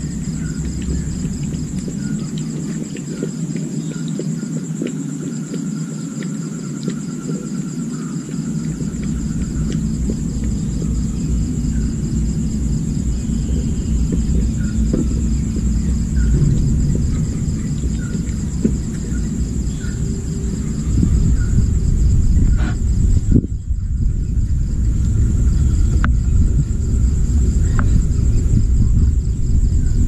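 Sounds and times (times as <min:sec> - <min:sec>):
low rumble: 0:00.0 - 0:05.0, 0:05.6 - 0:30.0
high pulsing insect trill: 0:00.0 - 0:30.0.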